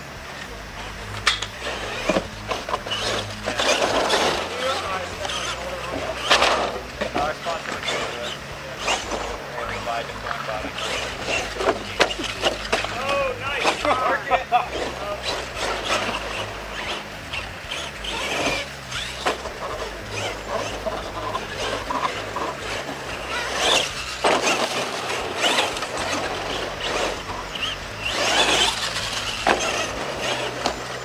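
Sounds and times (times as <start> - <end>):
toy truck motor whining: 0.0 - 31.0
tyres scrabbling on dirt: 0.0 - 31.0.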